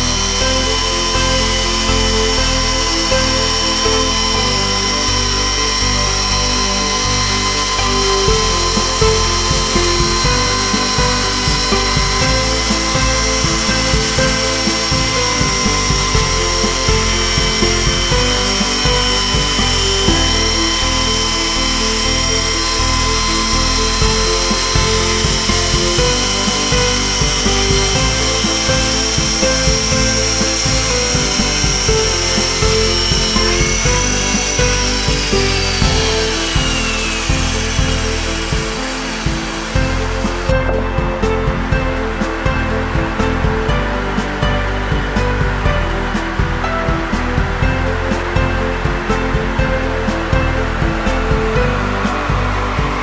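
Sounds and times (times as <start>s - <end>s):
chainsaw whining through log: 0.0s - 40.6s
background music: 0.0s - 53.0s.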